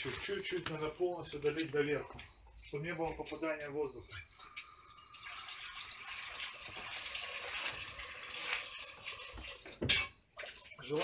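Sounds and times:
faint high chirp: 0:00.3 - 0:05.3
water pouring into plastic barrel: 0:04.8 - 0:11.0.

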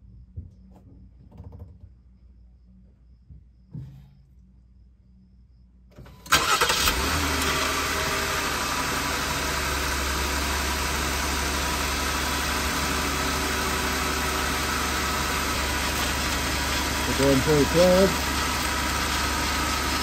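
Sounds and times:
car engine idling: 0:06.3 - 0:20.0.

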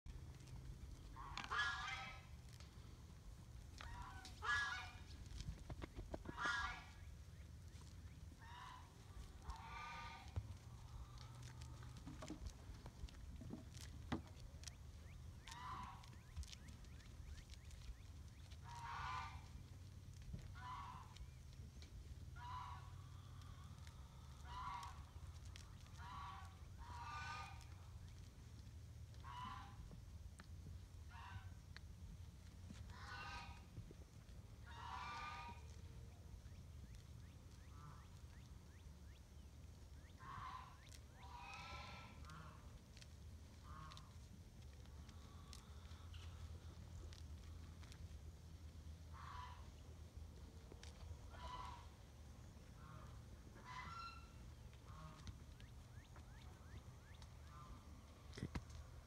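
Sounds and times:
low steady rumble: 0:00.0 - 0:59.0
bird honking: 0:01.1 - 0:02.3, 0:03.8 - 0:05.2, 0:06.2 - 0:07.0, 0:22.4 - 0:23.0, 0:40.0 - 0:42.7, 0:49.1 - 0:49.7, 0:51.3 - 0:51.9, 0:52.8 - 0:57.9
honking animal calls: 0:06.1 - 0:07.0, 0:51.3 - 0:52.0, 0:52.7 - 0:55.3.

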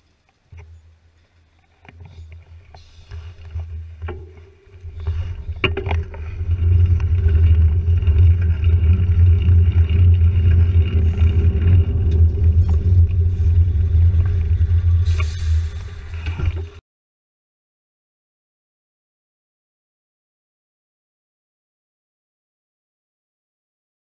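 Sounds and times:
road rumble: 0:02.1 - 0:16.8
wind buffeting microphone: 0:04.8 - 0:16.8.

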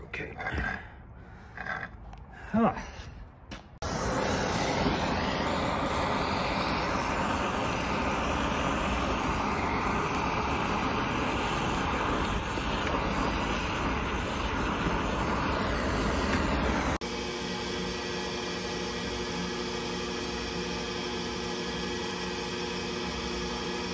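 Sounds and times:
gas torch flame hissing: 0:03.8 - 0:17.0.

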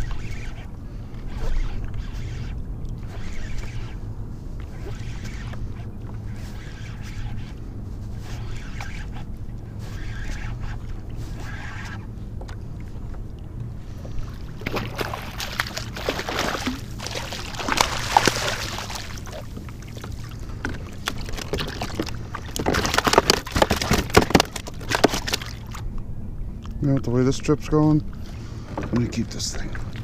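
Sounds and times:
fish splashing in water: 0:14.4 - 0:25.8.

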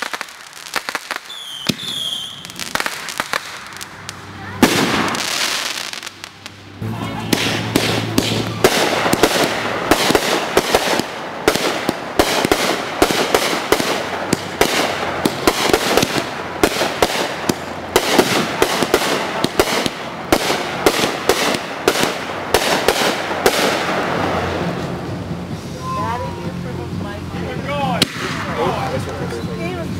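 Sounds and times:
fireworks popping and banging: 0:00.0 - 0:25.7, 0:27.9 - 0:29.9.

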